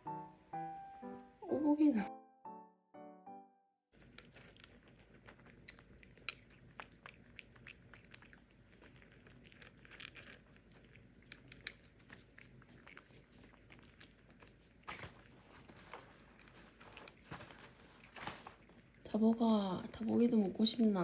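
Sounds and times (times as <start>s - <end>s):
kitten crunching dry kibble: 3.9s - 19.1s.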